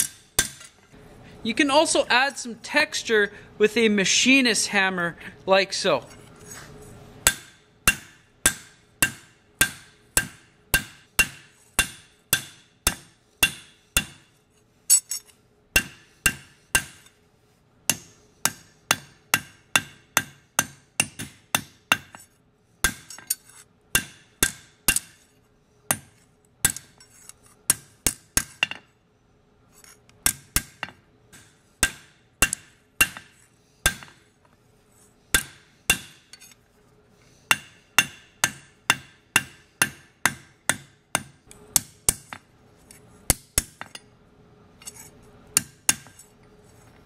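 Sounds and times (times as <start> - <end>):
hammer striking steel on anvil: 0.0 - 0.8, 7.2 - 14.3, 14.9 - 17.2, 17.9 - 25.3, 25.9 - 27.0, 27.7 - 28.9, 30.2 - 34.3, 35.3 - 36.6, 37.5 - 42.5, 43.3 - 44.1, 45.6 - 46.3.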